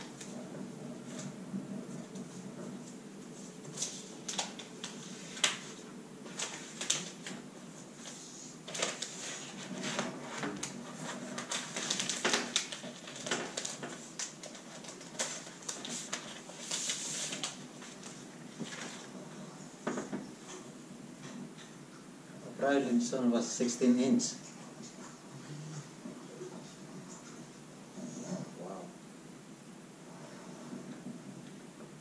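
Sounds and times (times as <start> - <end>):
plastic wrapping rustling: 0.0 - 20.6.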